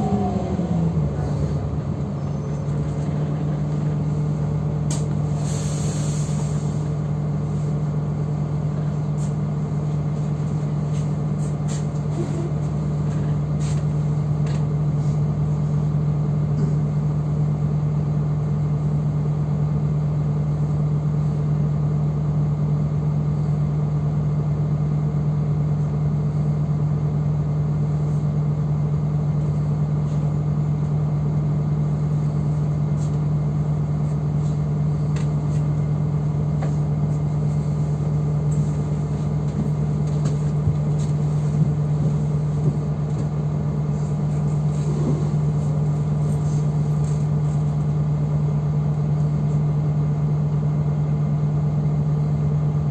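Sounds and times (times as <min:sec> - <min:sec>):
bus engine hum and rumble: 0:00.0 - 0:52.9.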